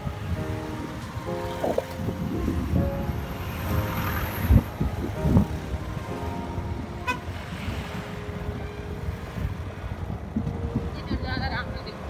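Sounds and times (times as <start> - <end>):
high horn toot: 6.9 - 7.6.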